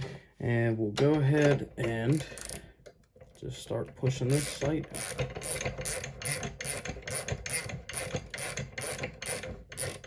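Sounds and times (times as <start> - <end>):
ratchet clicking: 1.0 - 3.0, 4.2 - 10.0.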